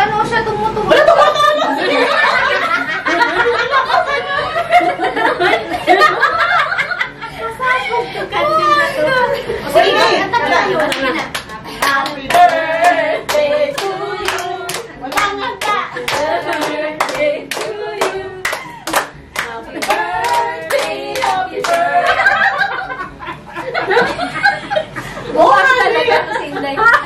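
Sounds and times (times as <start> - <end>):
laughter and chatter: 0.7 - 27.0
women singing: 8.7 - 22.8
people clapping in time: 10.9 - 21.9.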